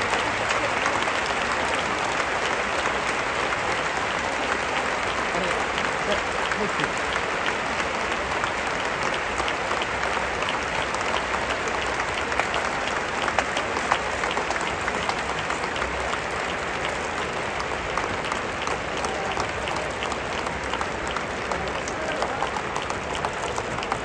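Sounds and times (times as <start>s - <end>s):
large crowd applauding: 0.0s - 24.0s.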